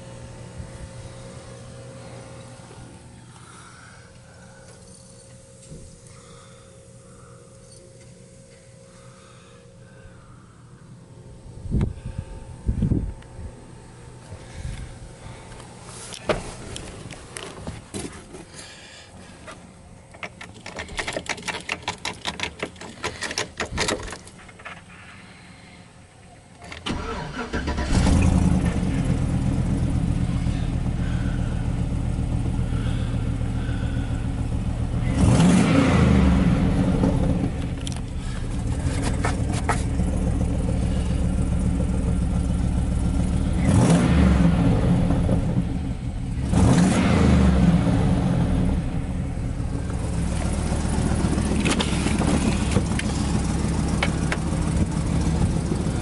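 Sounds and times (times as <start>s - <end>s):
truck engine starting and idling: 26.6s - 56.0s
engine revving: 26.9s - 56.0s.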